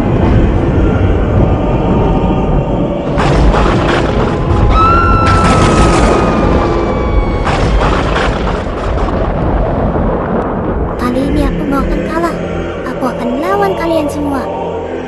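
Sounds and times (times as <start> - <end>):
background music: 0.0 - 6.9, 11.0 - 15.0
continuous rumbling boom: 0.0 - 15.0.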